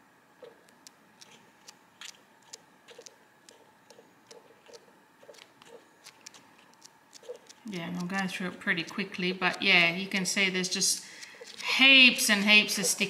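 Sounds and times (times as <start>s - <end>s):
paper pages flicking: 5.2s - 9.6s, 11.2s - 11.8s.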